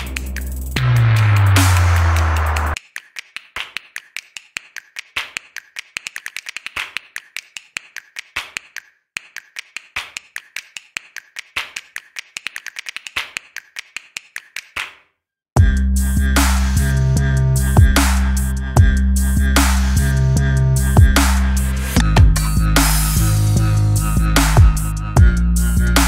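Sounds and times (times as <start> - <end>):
sharp clicks and taps: 2.7 - 15.0.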